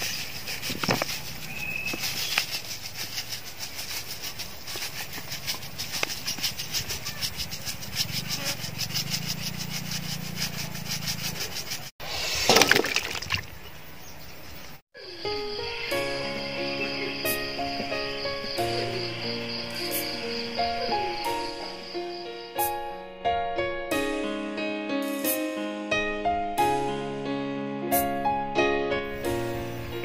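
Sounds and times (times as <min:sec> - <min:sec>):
music: 0:15.0 - 0:30.0.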